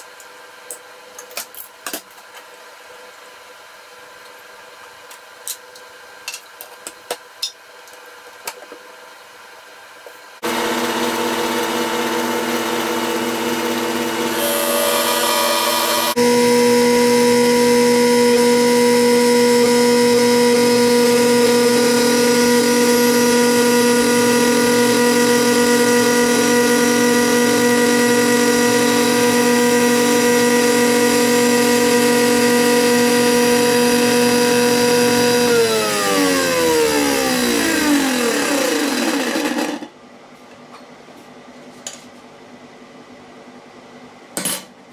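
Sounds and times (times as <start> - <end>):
table saw running: 10.4 - 39.9
saw blade cutting wood: 14.3 - 16.2.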